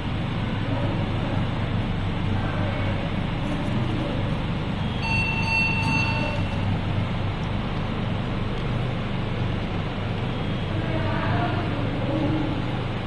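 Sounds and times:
steady low hum: 0:00.0 - 0:13.0
thin high tone: 0:04.8 - 0:06.8.

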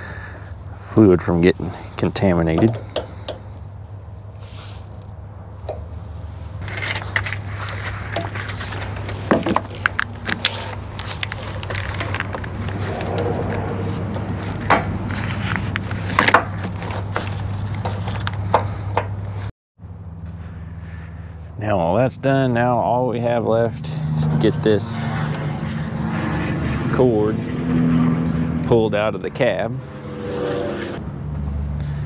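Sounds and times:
steady low hum: 0:10.7 - 0:17.7.

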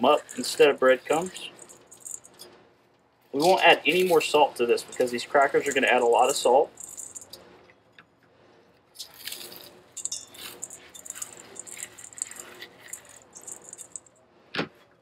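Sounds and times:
crackers crunching by hand: 0:09.0 - 0:14.0.

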